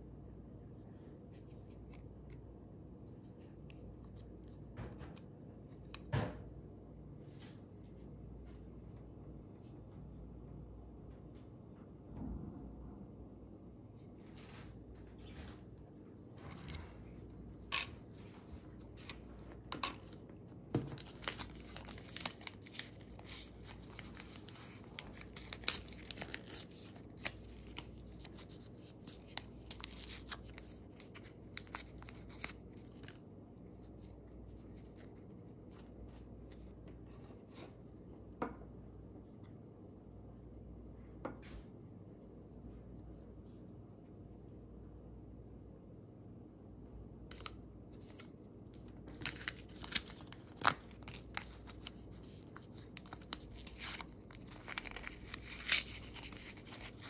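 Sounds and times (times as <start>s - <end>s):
plastic film crackling: 20.9s - 33.2s, 47.3s - 57.0s.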